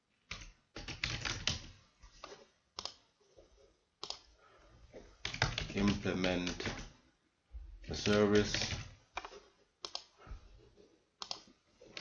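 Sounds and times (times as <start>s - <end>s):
typing on computer keyboard: 0.3s - 1.7s, 5.2s - 6.9s, 8.0s - 10.1s.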